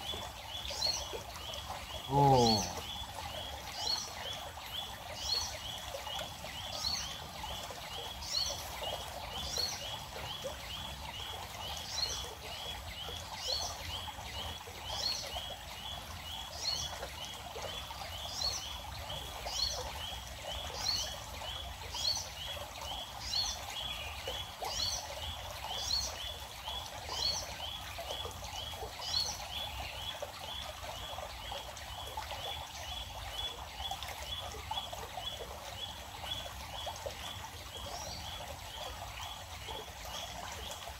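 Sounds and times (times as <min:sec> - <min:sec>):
birds chirping: 0:00.0 - 0:03.1
small stream rushing: 0:00.0 - 0:40.9
higher bird call: 0:02.1 - 0:02.9.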